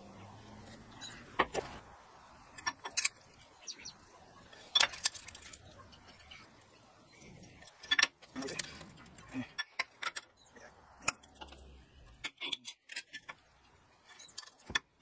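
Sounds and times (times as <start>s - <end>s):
steel tools handled at workbench: 2.5s - 3.5s, 4.4s - 6.6s, 7.4s - 10.4s, 11.0s - 14.9s.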